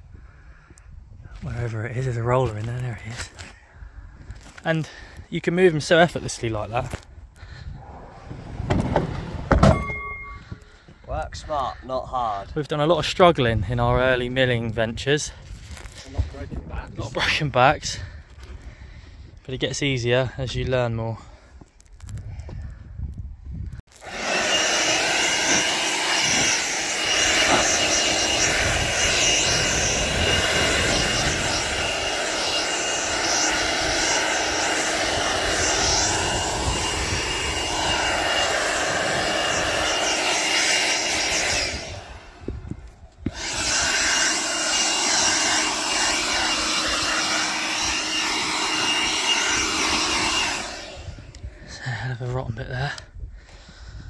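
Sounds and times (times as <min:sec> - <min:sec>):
handheld blower whining: 0:23.9 - 0:51.7.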